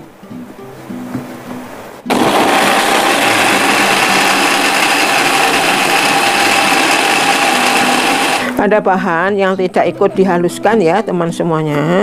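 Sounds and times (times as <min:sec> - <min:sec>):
electric blender motor whining: 0:02.1 - 0:08.6.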